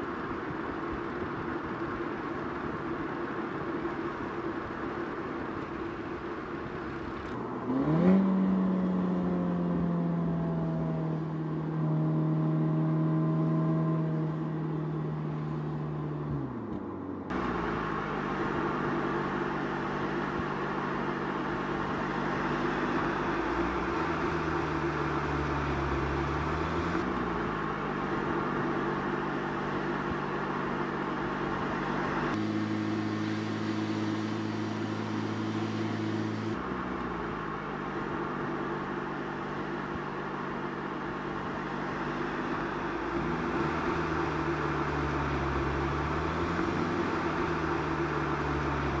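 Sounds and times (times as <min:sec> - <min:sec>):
car engine driving: 0:00.0 - 0:49.0.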